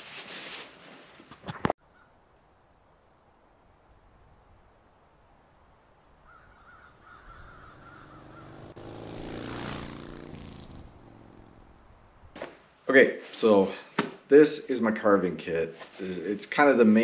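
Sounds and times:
faint outdoor ambience: 1.8 - 17.0
bird calls: 6.2 - 8.8.

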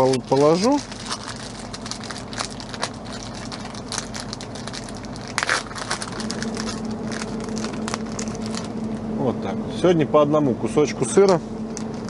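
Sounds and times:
plastic wrapping crinkling: 0.0 - 9.0, 11.7 - 12.0.

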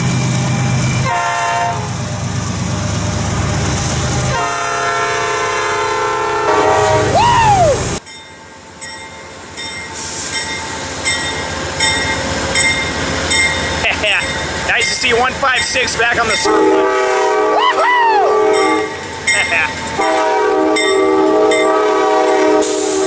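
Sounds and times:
train engine rumble: 0.0 - 23.0
locomotive air horn blasts: 1.0 - 1.9, 4.3 - 7.1, 16.4 - 19.0, 20.0 - 23.0.

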